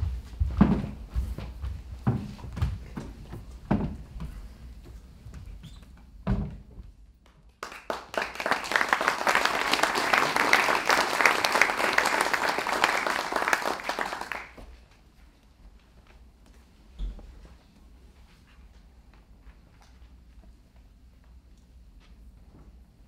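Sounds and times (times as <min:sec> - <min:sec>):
audience applauding: 0:07.6 - 0:14.7.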